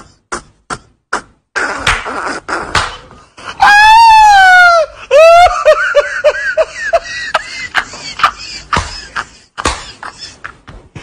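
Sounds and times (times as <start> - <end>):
man laughing hard: 3.5 - 11.0.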